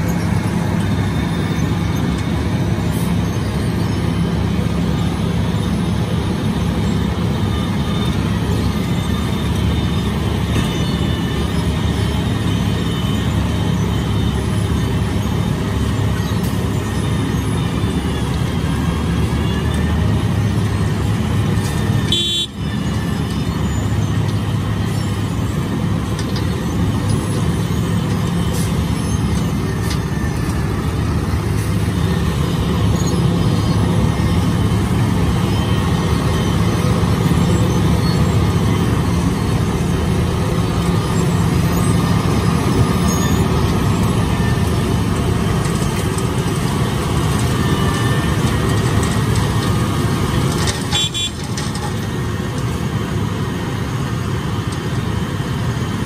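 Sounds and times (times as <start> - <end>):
milling machine drone: 0.0 - 56.0.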